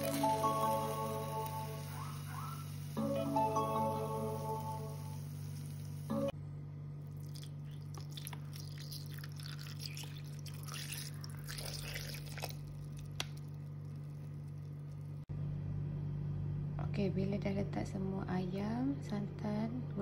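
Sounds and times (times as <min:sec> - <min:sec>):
background music: 0:00.0 - 0:06.4
steady low hum: 0:00.6 - 0:20.0
liquid dripping: 0:07.1 - 0:15.2
wet squelches: 0:07.1 - 0:15.2.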